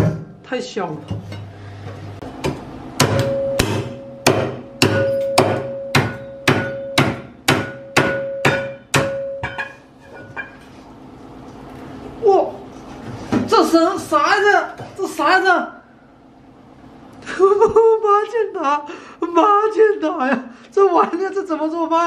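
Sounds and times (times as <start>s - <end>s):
cleaver chopping bones: 3.0s - 9.2s
ringing tone: 3.2s - 4.2s.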